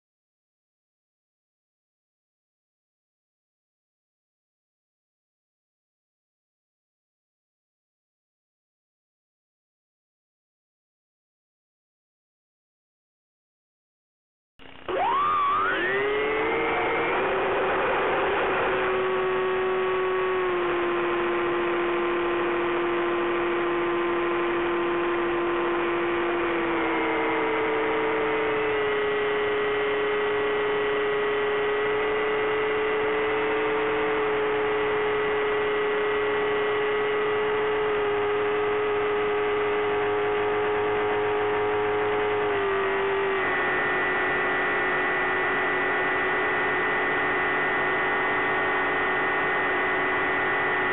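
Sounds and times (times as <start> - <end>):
electric motor propeller whine: 14.6 - 50.9.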